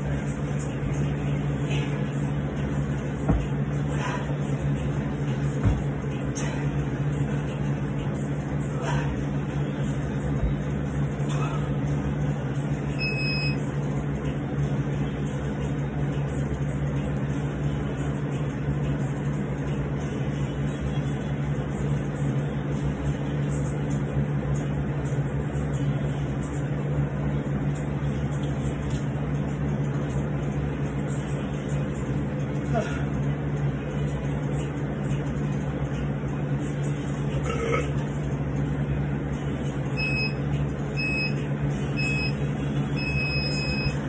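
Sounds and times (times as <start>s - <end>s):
mechanical hum with hiss: 0.0s - 44.0s
short high beep: 13.0s - 13.6s, 40.0s - 40.4s, 41.0s - 41.4s, 42.0s - 42.4s, 43.0s - 44.0s.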